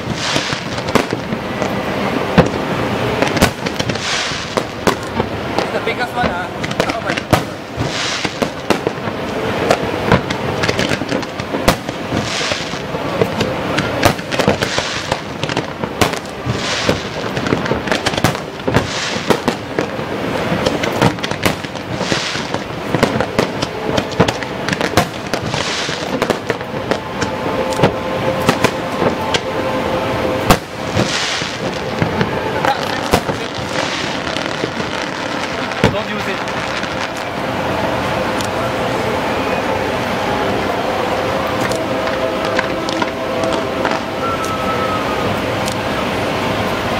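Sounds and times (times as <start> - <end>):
firework shell bursts banging: 0.0 - 29.6, 30.4 - 37.4
fireworks crackle and hiss: 0.0 - 46.9.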